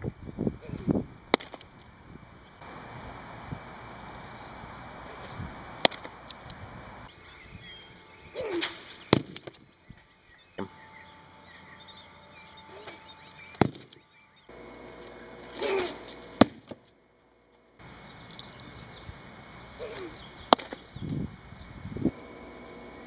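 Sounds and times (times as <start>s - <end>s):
birds chirping faintly: 0.0s - 23.0s
baseballs smacking target: 1.3s - 1.7s, 5.1s - 6.4s, 8.4s - 9.6s, 12.8s - 14.0s, 15.4s - 16.8s, 19.8s - 20.9s.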